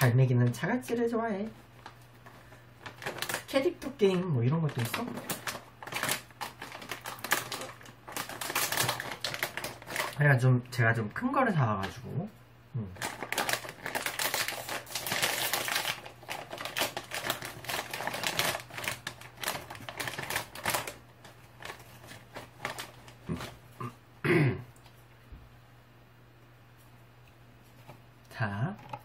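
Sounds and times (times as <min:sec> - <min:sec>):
plastic snack bag crinkling: 0:00.0 - 0:10.4, 0:13.0 - 0:23.7
short vocal sound: 0:12.7 - 0:13.0.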